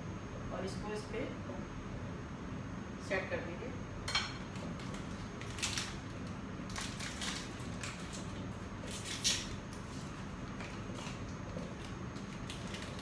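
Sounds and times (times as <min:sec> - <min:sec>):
plastic packaging crinkling: 0:04.8 - 0:13.0.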